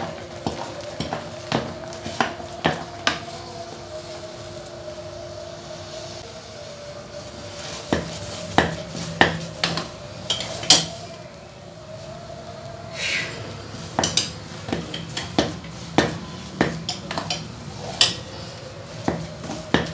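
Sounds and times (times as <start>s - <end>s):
spoon knocking and scraping a pot: 0.1s - 3.2s, 7.9s - 11.0s, 13.8s - 18.4s, 19.0s - 19.9s.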